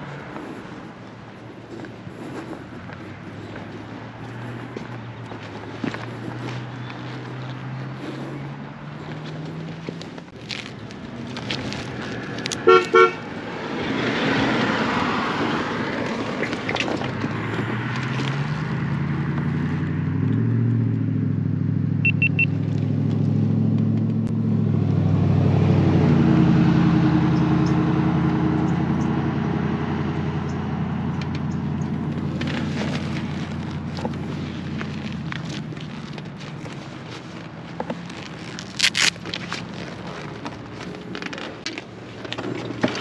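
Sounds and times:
motorcycle engine accelerating: 0:00.0 - 0:43.0
short horn beeps: 0:12.6 - 0:13.2, 0:22.0 - 0:22.6.

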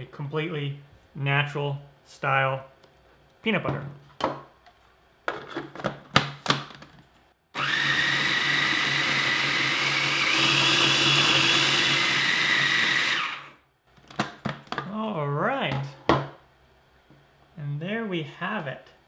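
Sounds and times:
food processor motor whine: 0:07.6 - 0:13.6.

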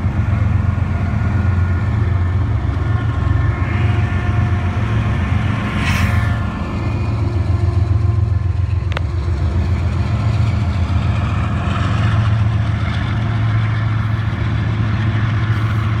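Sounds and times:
locomotive engine drone: 0:00.0 - 0:16.0.

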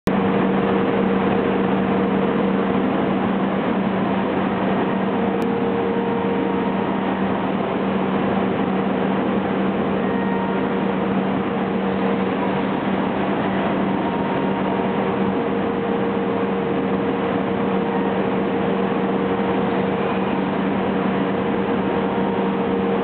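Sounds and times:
cnc machine milling wood: 0:00.1 - 0:23.0
low machine hum: 0:00.1 - 0:23.0.

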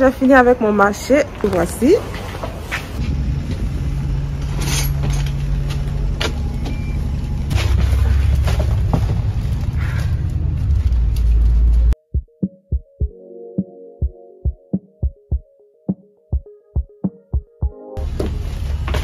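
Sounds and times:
bus running hum and rumble: 0:00.0 - 0:12.0, 0:18.0 - 0:19.0
electronic music with drum beat: 0:12.0 - 0:18.0.

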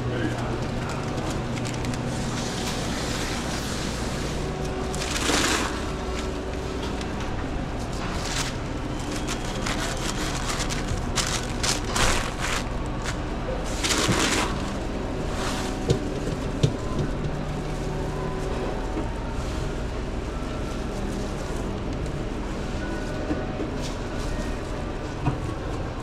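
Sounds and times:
steady low hum: 0:00.0 - 0:26.0
wrapper rustling and crinkling: 0:00.6 - 0:06.8, 0:07.8 - 0:15.8.

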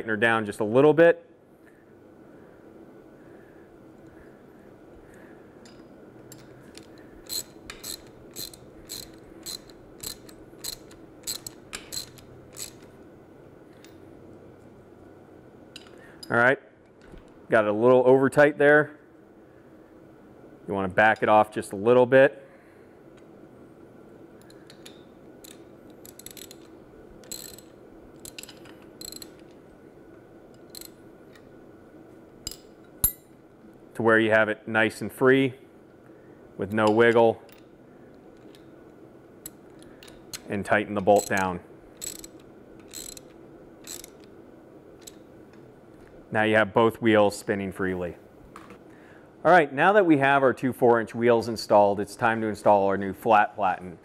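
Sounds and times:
ratchet clicking: 0:05.7 - 0:12.9, 0:24.4 - 0:29.5, 0:30.6 - 0:31.4, 0:41.2 - 0:44.3.

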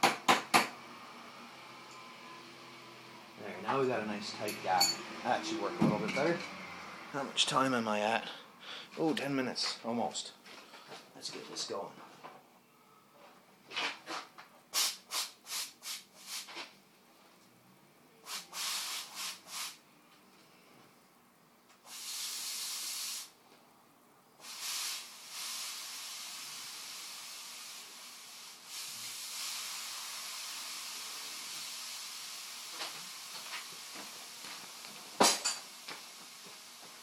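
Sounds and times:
steam cleaner hissing: 0:14.7 - 0:16.6, 0:18.2 - 0:19.8, 0:21.8 - 0:23.4, 0:24.4 - 0:37.0.

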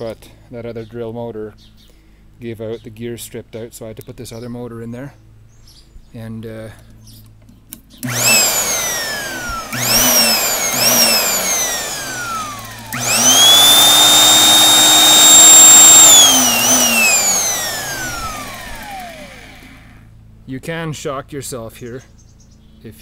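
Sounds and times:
electric chainsaw motor whining: 0:08.0 - 0:20.1.

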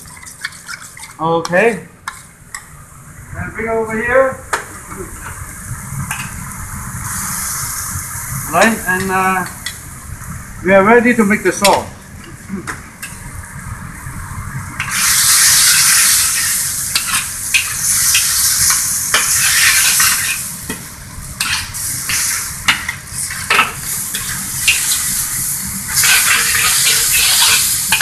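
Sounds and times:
food sizzling in a wok: 0:04.7 - 0:10.6, 0:13.0 - 0:28.0
spatula scraping a wok: 0:14.8 - 0:20.5, 0:25.9 - 0:28.0.

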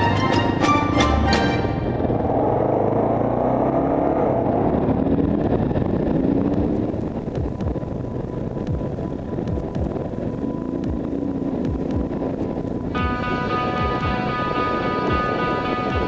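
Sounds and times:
motorcycle engine accelerating: 0:00.0 - 0:16.0
wind rush on microphone: 0:04.1 - 0:16.0.

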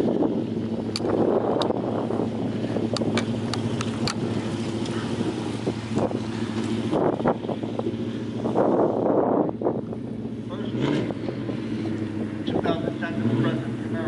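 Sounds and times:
wind buffeting microphone: 0:00.0 - 0:13.3
vehicle engine humming: 0:00.0 - 0:14.0.

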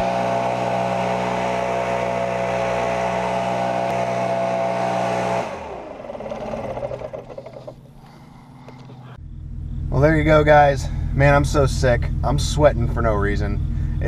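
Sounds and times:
leaf blower running: 0:00.0 - 0:08.9.

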